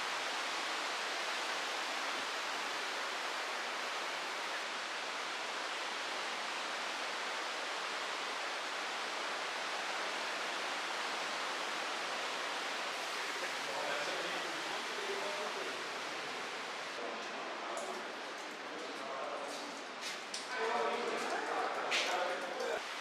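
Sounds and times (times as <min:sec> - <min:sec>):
river rushing over rapids: 0:00.0 - 0:17.0.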